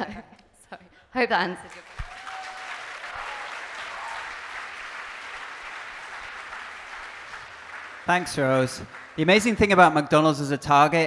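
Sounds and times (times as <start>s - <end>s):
audience applauding: 1.7s - 10.0s.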